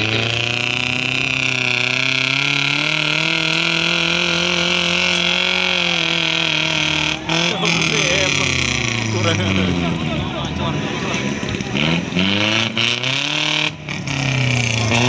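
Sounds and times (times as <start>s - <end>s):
off-road vehicle engine revving: 0.0s - 15.0s.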